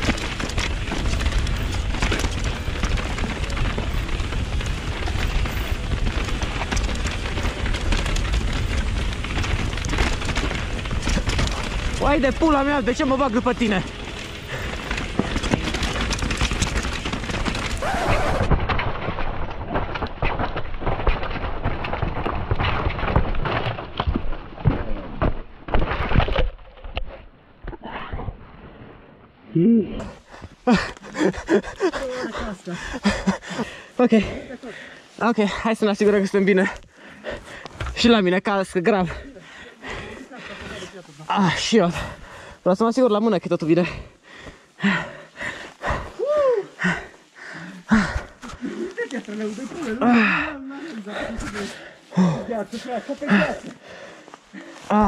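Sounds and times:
bike clattering over bumps: 0.0s - 27.3s.

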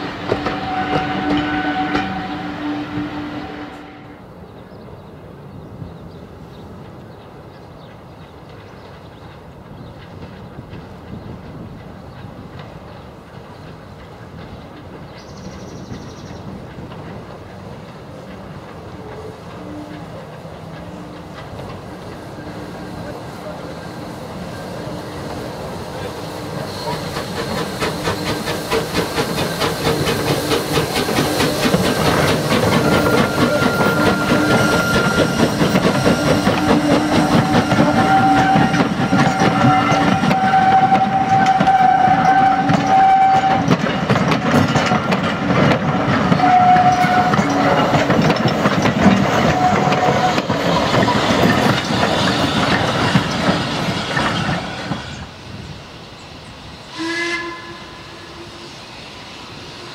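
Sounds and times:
steam locomotive chuffing: 0.0s - 4.4s, 6.2s - 59.9s
train wheels clattering over rail joints: 6.4s - 55.7s
high squealing tones: 29.8s - 43.6s.

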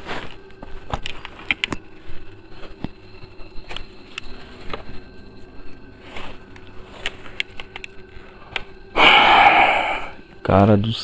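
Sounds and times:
faint steady hum: 0.0s - 11.0s
loud hiss of noise: 8.9s - 10.2s.

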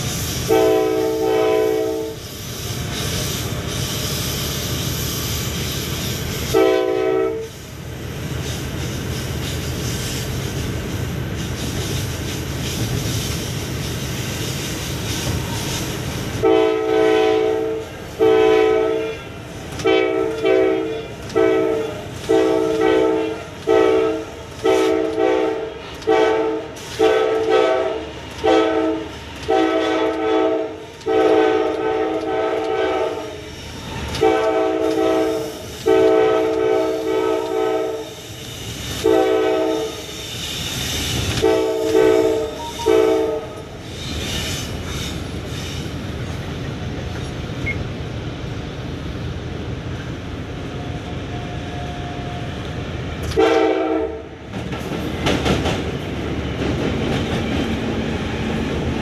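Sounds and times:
train running rumble: 0.0s - 59.0s
locomotive air horn blasts: 0.4s - 2.3s, 6.5s - 7.6s, 15.2s - 33.5s, 34.2s - 38.4s, 39.0s - 40.3s, 41.2s - 43.8s, 53.3s - 54.4s.

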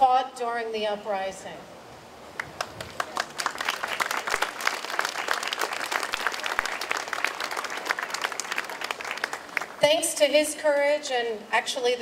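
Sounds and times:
crowd applauding: 2.4s - 9.8s.

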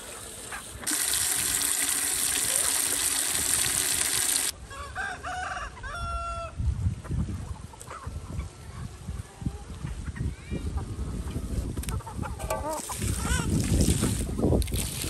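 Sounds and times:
rooster crowing: 4.6s - 6.6s.

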